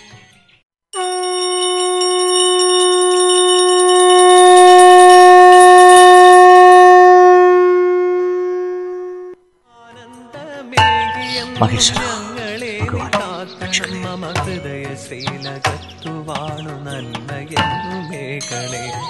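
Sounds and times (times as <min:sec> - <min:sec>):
conch shell blown: 0:00.9 - 0:09.5.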